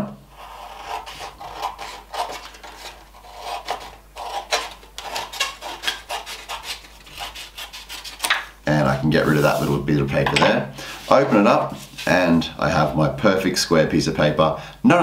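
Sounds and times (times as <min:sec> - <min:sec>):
scissors snipping paper: 0:00.8 - 0:08.4.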